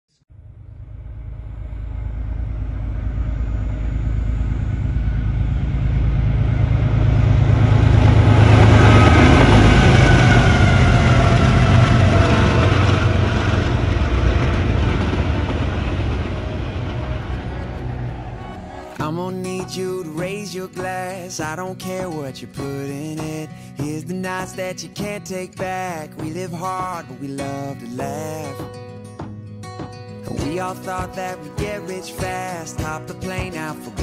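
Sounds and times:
freight locomotives rumbling past: 0.4s - 20.8s.

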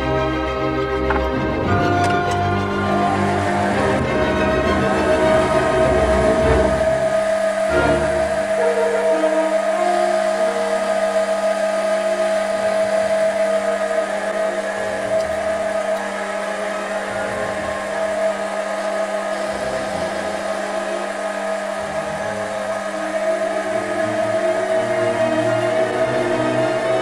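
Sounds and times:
lathe motor whining: 0.0s - 27.0s.

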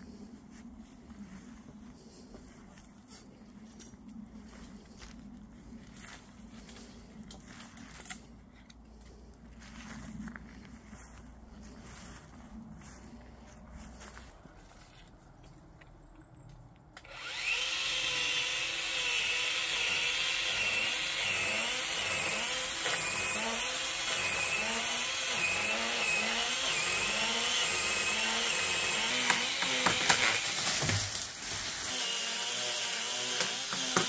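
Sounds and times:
pole saw cutting wood: 17.0s - 34.0s.

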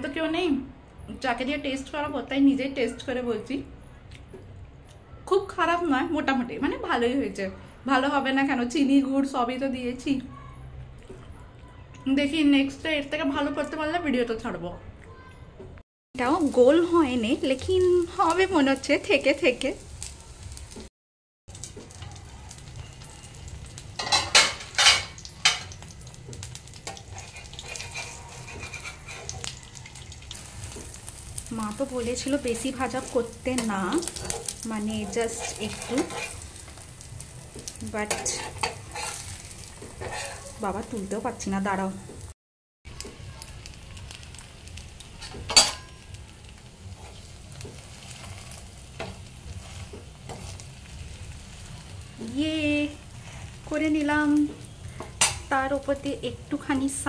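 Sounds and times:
crepe sizzling in a frying pan: 16.2s - 20.9s, 21.5s - 57.0s
metal cookware clattering: 24.0s - 25.8s, 26.8s - 29.8s, 33.4s - 36.5s, 38.0s - 40.6s, 45.2s - 46.0s, 55.2s - 55.5s
spatula scraping and tapping pan: 26.8s - 29.8s, 32.5s - 36.7s, 37.5s - 40.6s, 46.9s - 50.7s, 54.4s - 55.5s.

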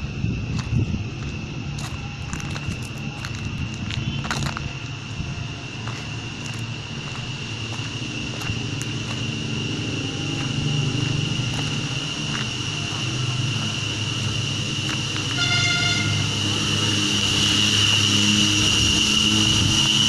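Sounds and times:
high-pitched drone: 0.0s - 20.0s
short horn toot: 15.3s - 16.2s.

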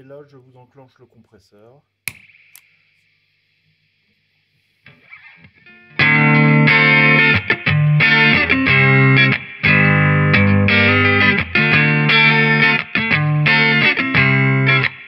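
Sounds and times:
faint hiss: 0.0s - 5.7s
compressed electric guitar chords: 4.9s - 15.0s.

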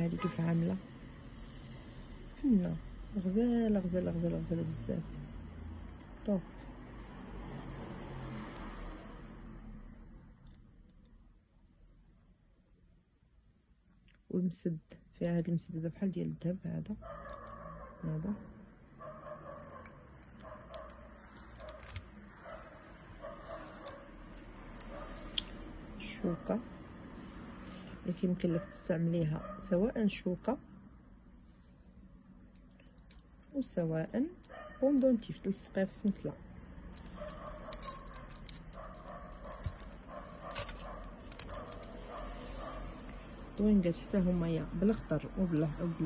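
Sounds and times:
metal jewelry clinking: 17.1s - 17.7s, 19.4s - 25.2s, 32.5s - 42.8s, 45.4s - 46.0s.

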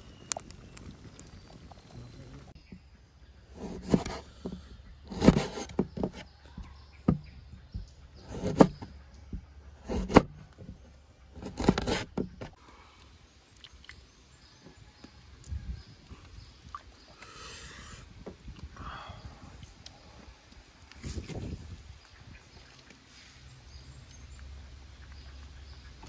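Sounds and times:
knife chopping on wooden board: 3.5s - 6.2s, 8.2s - 8.9s, 9.8s - 10.4s, 11.4s - 12.3s.

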